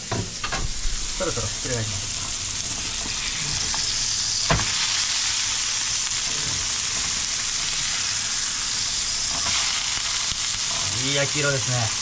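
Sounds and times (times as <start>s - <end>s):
patties sizzling in frying pan: 0.2s - 12.0s.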